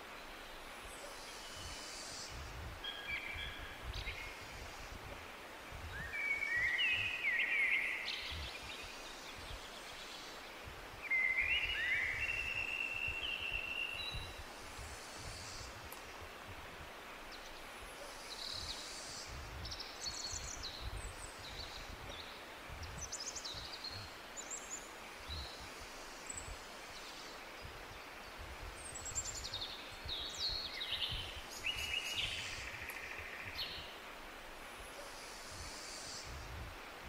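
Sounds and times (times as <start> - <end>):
steady hiss: 0.0 - 37.0
small birds chirping and trilling: 17.2 - 34.0.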